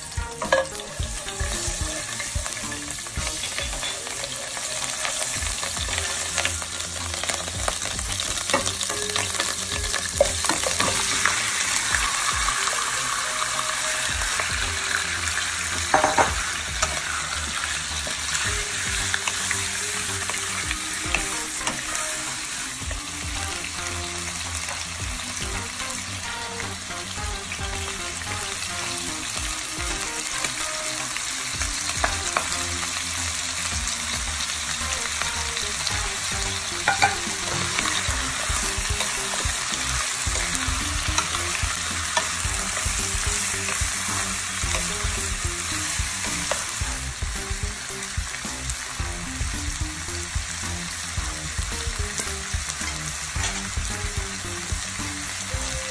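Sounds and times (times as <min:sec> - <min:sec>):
utensil stirring and knocking pan: 0:00.0 - 0:12.8, 0:15.8 - 0:23.4, 0:35.8 - 0:49.6
oil sizzling in frying pan: 0:00.0 - 0:55.9.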